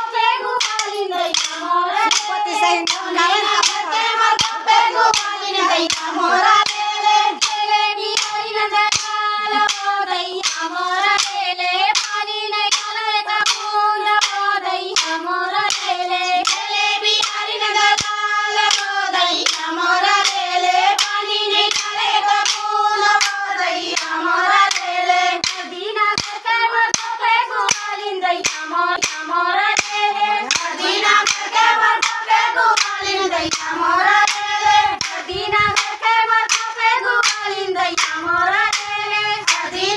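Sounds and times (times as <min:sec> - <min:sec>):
hand claps on steady beat: 0:00.0 - 0:39.9
women singing in unison: 0:00.0 - 0:39.9.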